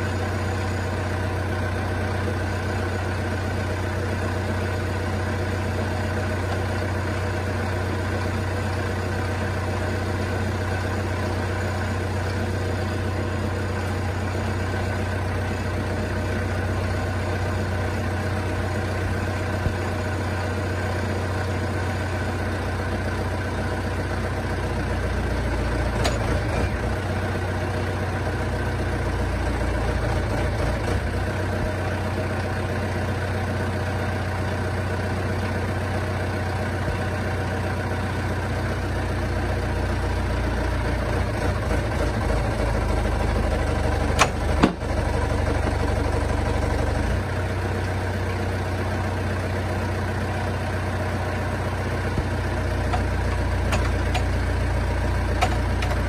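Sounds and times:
loader engine idling: 0:00.0 - 0:56.0.

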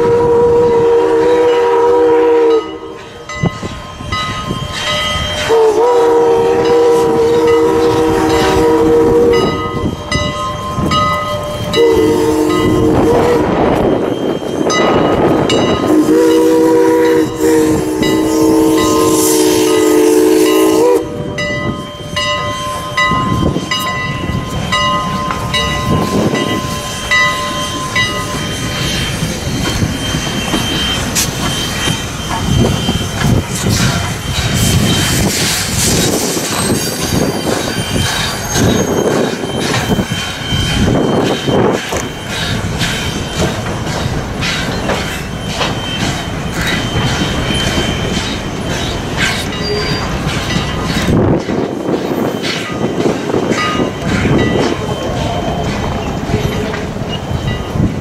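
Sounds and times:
steam locomotive chime whistle: 0:00.0 - 0:58.0
wheels clattering on rails: 0:21.3 - 0:58.0.

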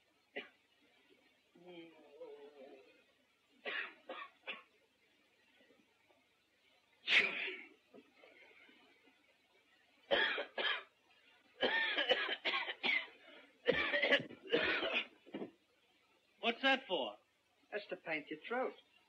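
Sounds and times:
man coughing: 0:11.6 - 0:13.1, 0:13.7 - 0:15.2.

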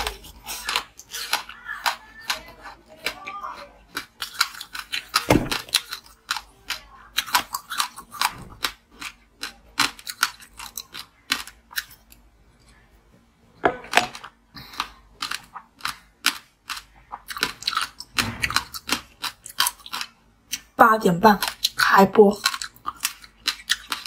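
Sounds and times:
ice being bitten and chewed: 0:21.4 - 0:24.0.

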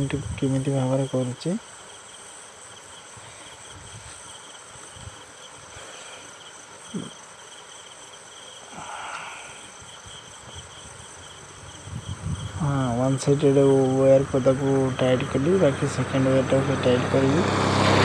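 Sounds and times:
insects chirping: 0:00.0 - 0:18.0
soft rustle: 0:03.1 - 0:06.2.

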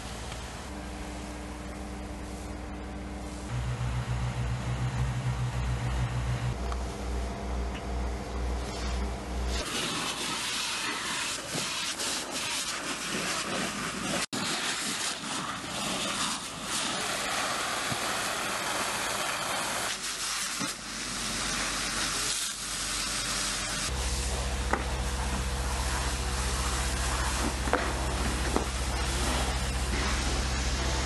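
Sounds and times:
steady low hum: 0:00.0 - 0:09.6, 0:23.9 - 0:31.0
hose water jet hissing: 0:09.6 - 0:31.0
steam hissing: 0:09.6 - 0:31.0.

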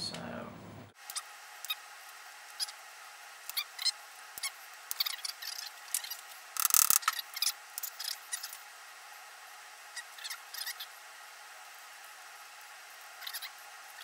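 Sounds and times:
socket ratchet clicking: 0:06.6 - 0:07.1.

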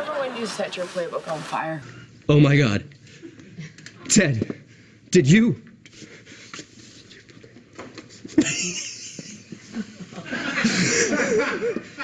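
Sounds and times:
people laughing: 0:00.0 - 0:01.1, 0:08.2 - 0:12.0.

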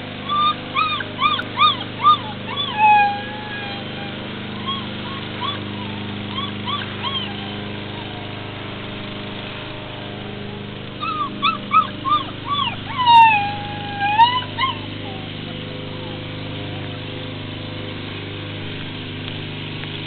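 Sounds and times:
puppy whining and yipping: 0:00.2 - 0:07.6, 0:11.0 - 0:15.4.

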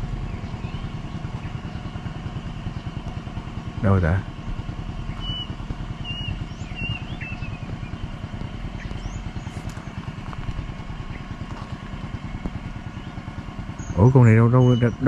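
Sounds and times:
small engine idling: 0:00.0 - 0:15.0
high bird chirps: 0:05.1 - 0:10.0, 0:12.9 - 0:15.0.

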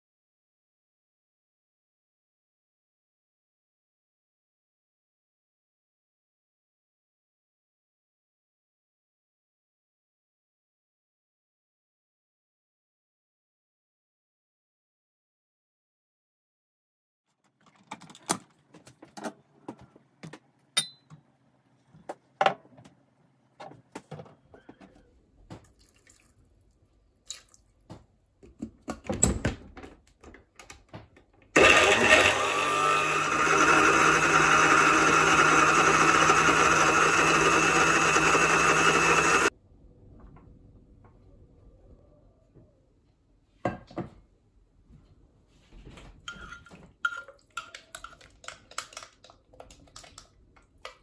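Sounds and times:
water splashing and dripping: 0:25.6 - 0:27.8
electric blender running: 0:31.6 - 0:39.5.

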